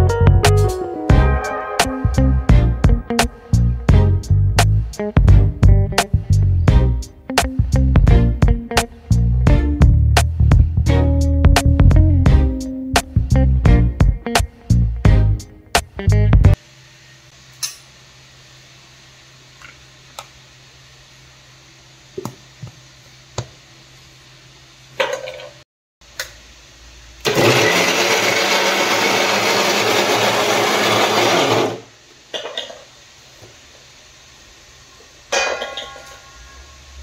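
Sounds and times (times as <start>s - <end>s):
mixer grinder motor running: 27.2s - 31.9s.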